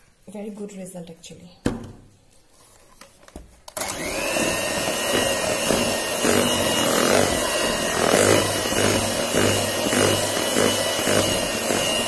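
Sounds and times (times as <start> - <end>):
electric hand mixer whirring: 3.8 - 12.0.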